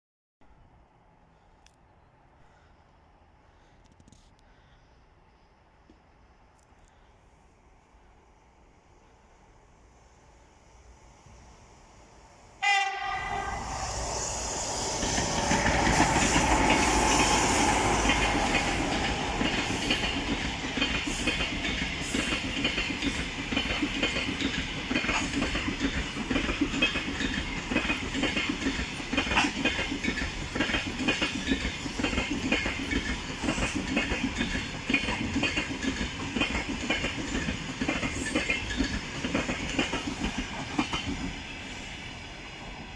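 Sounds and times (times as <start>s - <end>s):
locomotive horn blast: 12.6s - 14.0s
train wheels clattering over rail joints: 14.9s - 41.4s.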